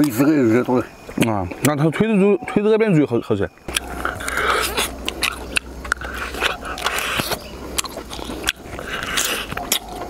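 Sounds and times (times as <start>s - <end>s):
person chewing crispy food: 3.7s - 10.0s.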